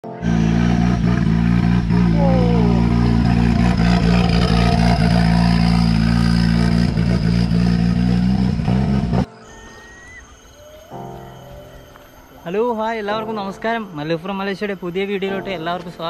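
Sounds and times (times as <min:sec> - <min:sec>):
motor vehicle engine running: 0:00.0 - 0:09.3.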